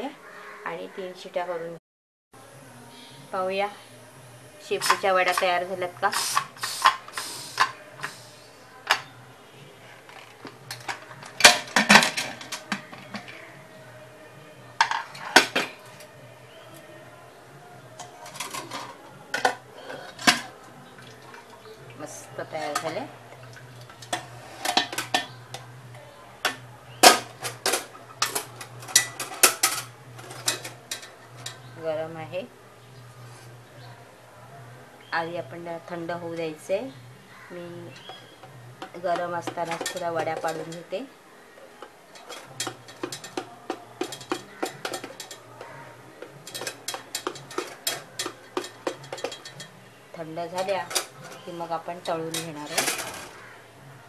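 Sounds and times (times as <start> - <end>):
metal tongs clinking on steel pot: 4.7 - 8.2, 22.3 - 25.7, 26.4 - 31.7, 37.9 - 41.0, 41.8 - 53.5
knife knocking and scraping in tin: 38.0 - 40.8, 42.2 - 49.8.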